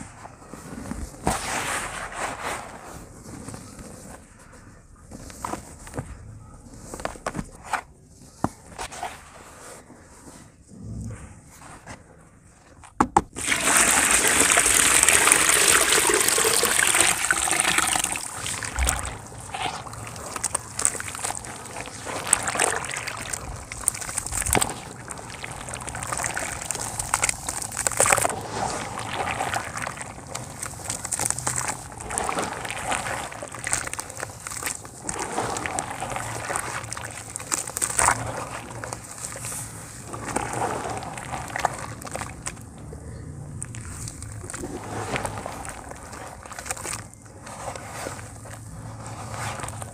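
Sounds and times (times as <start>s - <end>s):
hands squishing wet cement: 13.3s - 49.9s
water pouring into a bucket: 13.4s - 42.9s, 43.7s - 48.2s.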